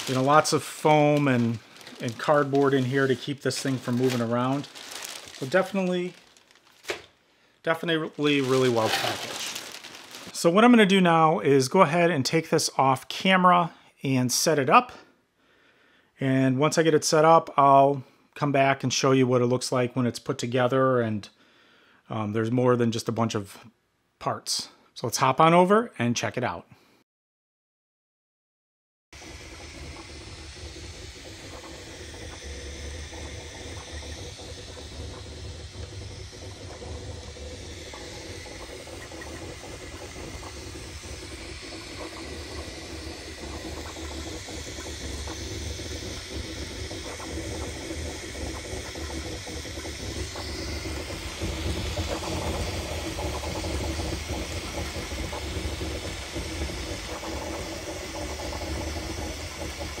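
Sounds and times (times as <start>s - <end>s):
printer hissing whir: 0.0s - 4.8s, 29.2s - 60.0s
rising whine: 29.2s - 59.3s.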